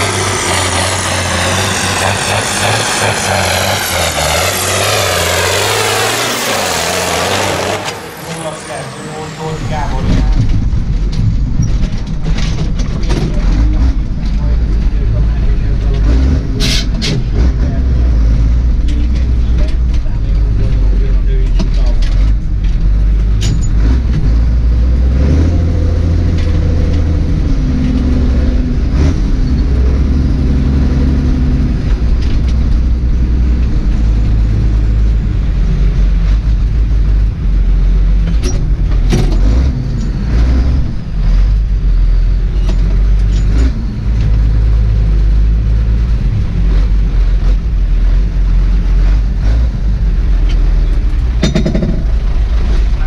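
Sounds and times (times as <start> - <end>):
tractor diesel engine revving: 0.0 - 53.0
sharp knocks: 51.4 - 52.1.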